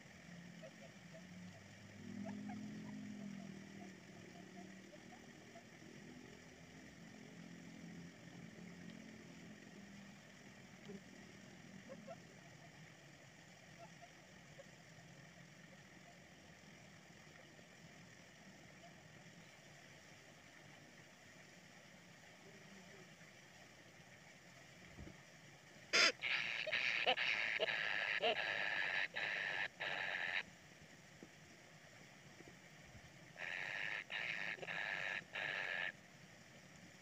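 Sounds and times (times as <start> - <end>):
faint low hum: 0.0 - 37.0
faint ticks: 7.9 - 37.0.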